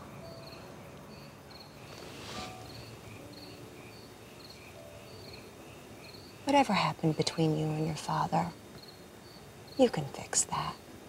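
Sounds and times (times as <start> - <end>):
crickets chirping: 0.0 - 11.0
soft rustle: 1.7 - 3.0.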